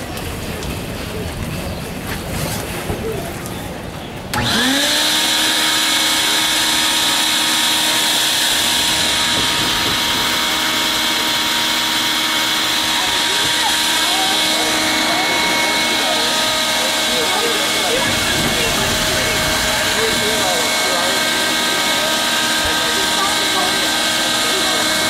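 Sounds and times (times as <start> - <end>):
electric air blower whining: 4.3 - 25.0
air rushing through hose: 5.0 - 22.9.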